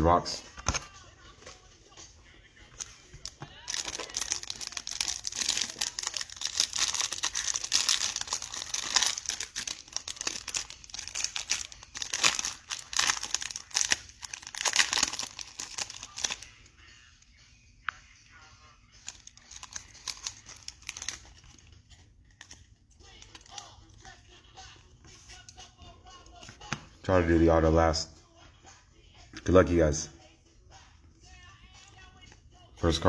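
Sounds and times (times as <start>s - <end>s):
plastic wrapper crinkling and tearing: 2.8s - 16.5s, 19.0s - 24.1s.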